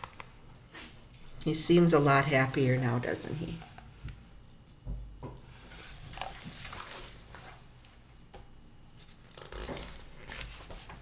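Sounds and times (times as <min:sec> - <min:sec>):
paper page rustling: 0:05.7 - 0:07.7, 0:08.9 - 0:11.0.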